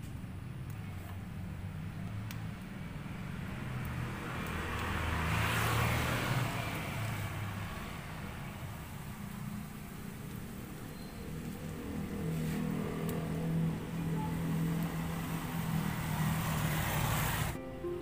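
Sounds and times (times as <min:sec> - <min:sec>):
vehicle passing: 0:01.6 - 0:18.0.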